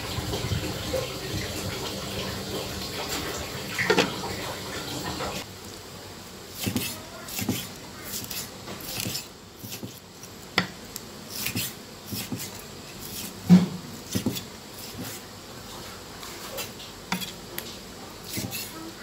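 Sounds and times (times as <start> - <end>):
knife chopping on wooden block: 6.6 - 10.0, 11.4 - 12.5, 13.2 - 15.2, 18.3 - 18.7.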